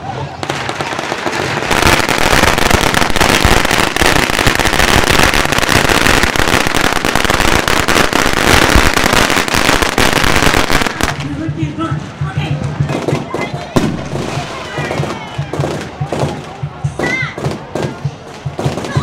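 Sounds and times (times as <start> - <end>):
firecrackers crackling: 0.0 - 19.0.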